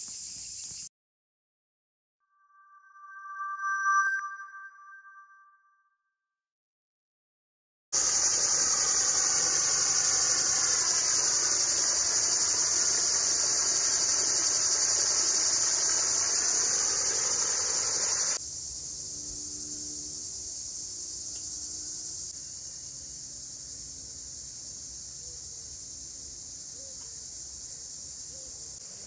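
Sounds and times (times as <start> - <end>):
high-pitched insect chorus: 0.0 - 0.9, 8.0 - 29.0
pond aerator splashing water: 8.0 - 18.4.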